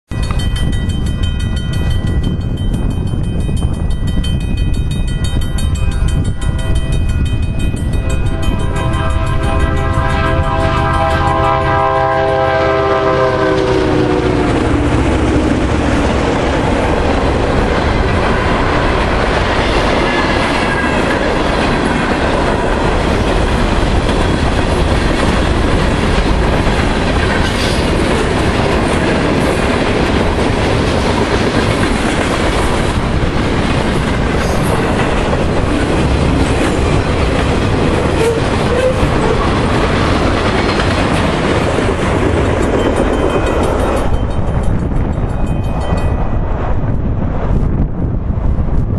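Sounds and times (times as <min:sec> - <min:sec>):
freight cars rolling on rails: 0:00.1 - 0:47.9
locomotive horn: 0:08.0 - 0:15.0, 0:38.0 - 0:39.6.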